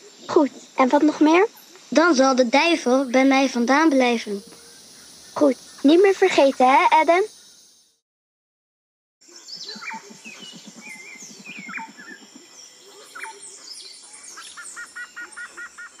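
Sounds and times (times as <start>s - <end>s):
rapid repeated bird chirp: 1.5s - 8.0s, 9.3s - 16.0s
birds chirping and whistling: 2.6s - 7.7s, 9.3s - 16.0s.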